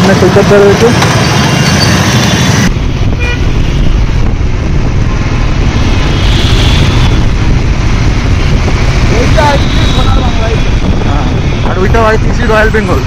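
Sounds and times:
motorcycle engine rumble: 0:02.1 - 0:13.0
vehicle horn toot: 0:03.2 - 0:03.8, 0:06.1 - 0:07.2, 0:09.3 - 0:10.8.

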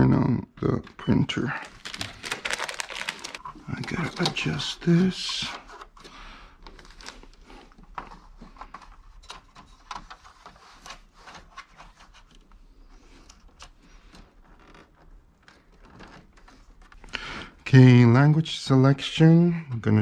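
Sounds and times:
paper rustling: 0:01.6 - 0:17.0
plastic clicks and scrapes: 0:01.6 - 0:17.1.

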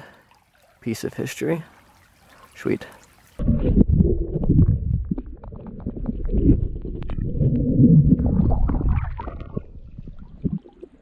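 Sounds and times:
muffled underwater rumble: 0:03.4 - 0:11.0.

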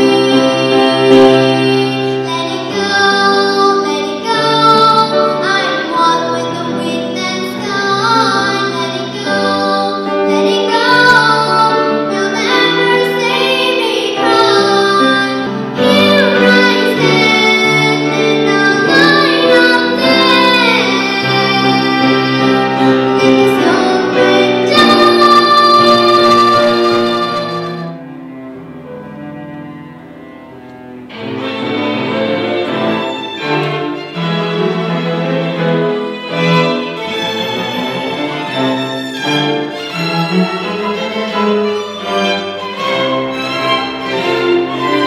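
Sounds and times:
girl singing into microphone: 0:00.0 - 0:27.8
musical accompaniment: 0:00.0 - 0:45.0.

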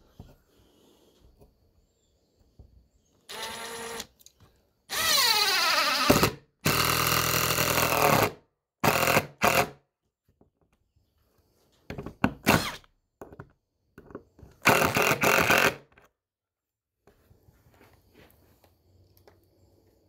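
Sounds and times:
power drill driving a screw: 0:03.3 - 0:04.1, 0:04.9 - 0:09.7, 0:12.5 - 0:12.8, 0:14.6 - 0:15.8.

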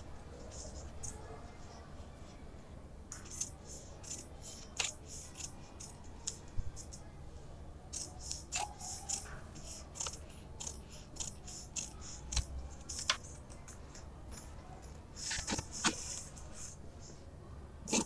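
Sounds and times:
shears snipping paper: 0:03.3 - 0:06.4, 0:08.0 - 0:13.2.

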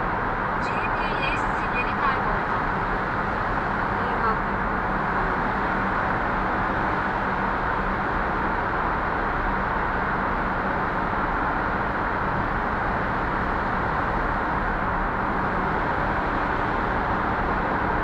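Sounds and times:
car road and tyre noise: 0:00.0 - 0:18.0
faint low engine hum: 0:00.0 - 0:18.0.

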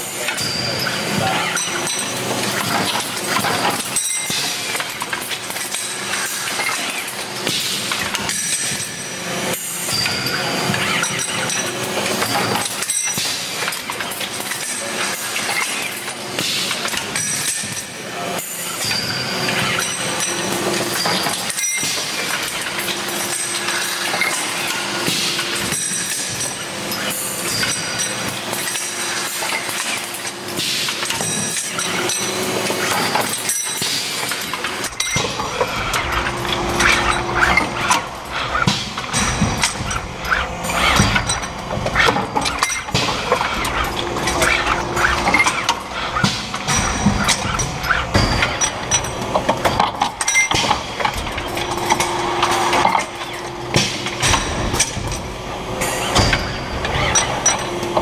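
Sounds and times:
machine metallic clattering: 0:00.0 - 0:58.0.

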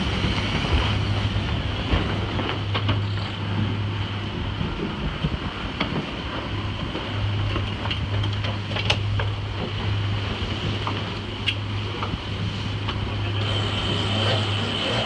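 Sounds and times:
boat low hum: 0:00.0 - 0:15.0
rushing wind and water: 0:00.0 - 0:15.0.

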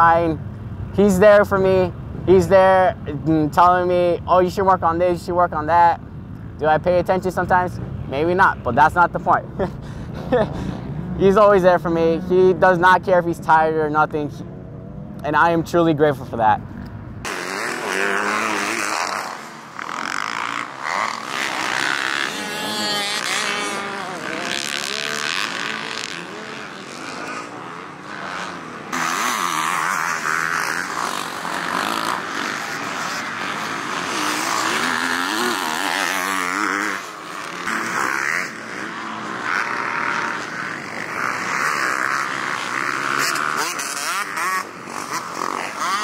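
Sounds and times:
dirt bike engines revving: 0:00.0 - 0:46.0.

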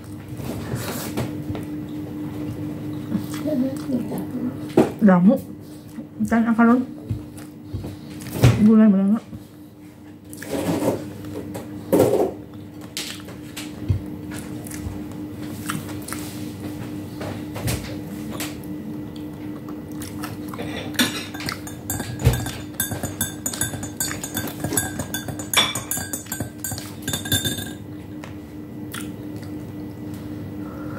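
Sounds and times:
steady low hum: 0:14.0 - 0:30.9
person chewing: 0:18.9 - 0:21.6, 0:28.9 - 0:29.6
spoon clinking against a glass: 0:21.0 - 0:27.8.

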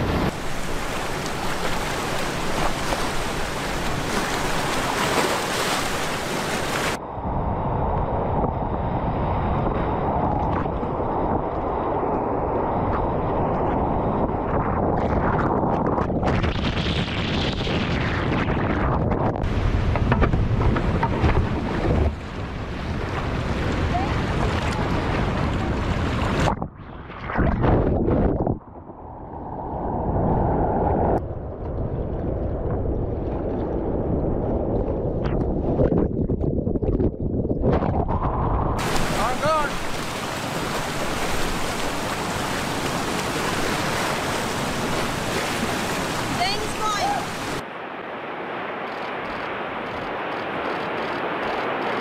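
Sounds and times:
water splash: 0:00.0 - 0:07.0, 0:37.7 - 0:52.0
wind buffeting camera: 0:00.0 - 0:52.0
rushing whitewater: 0:00.3 - 0:07.0, 0:38.8 - 0:52.0.

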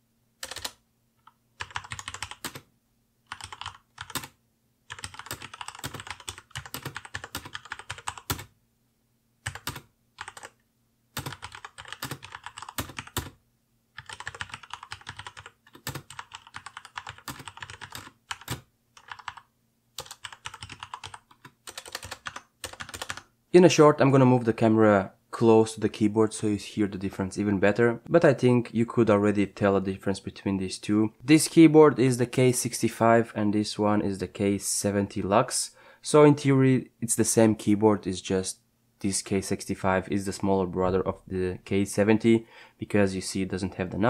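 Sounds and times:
mechanical keyboard typing: 0:00.4 - 0:02.6, 0:03.3 - 0:08.5, 0:09.4 - 0:10.6, 0:11.2 - 0:13.4, 0:14.0 - 0:23.3.

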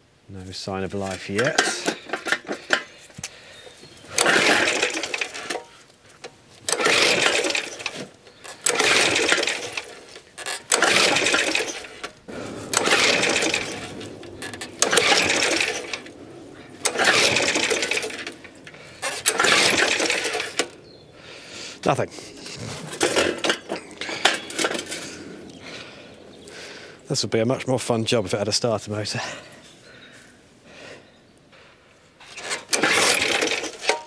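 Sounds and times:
recoil starter cord pulls: 0:01.1 - 0:21.0, 0:21.7 - 0:25.9, 0:32.2 - 0:34.0
engine turning over: 0:01.4 - 0:02.9, 0:03.9 - 0:27.0, 0:32.3 - 0:34.0.

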